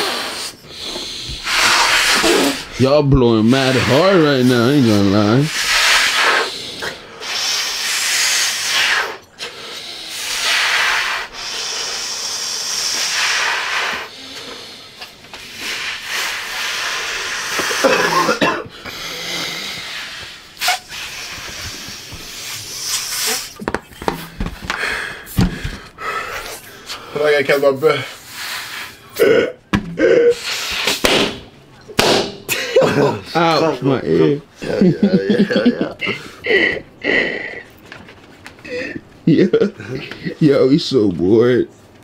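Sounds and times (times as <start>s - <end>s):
breathy puffs into balloons: 0.0s - 2.8s, 3.5s - 29.3s, 30.0s - 31.1s
knocks: 29.7s - 30.0s.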